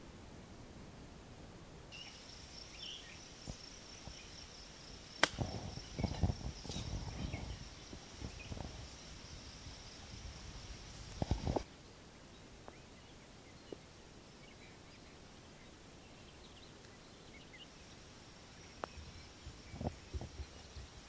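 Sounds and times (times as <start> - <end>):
high insect trill: 1.9 - 11.7
golf club striking ball: 5.2 - 5.5
wind rumble on microphone: 5.3 - 11.7, 18.8 - 21.0.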